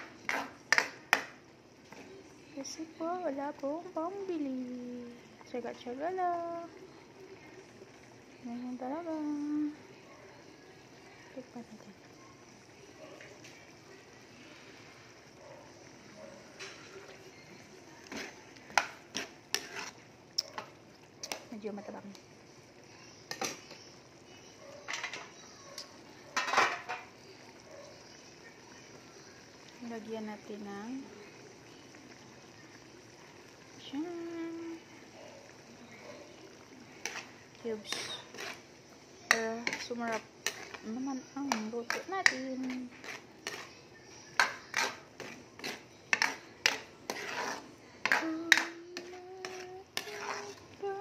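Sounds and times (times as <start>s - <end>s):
metal ladle scraping pot: 18.0s - 20.1s, 36.9s - 38.7s, 39.3s - 50.8s.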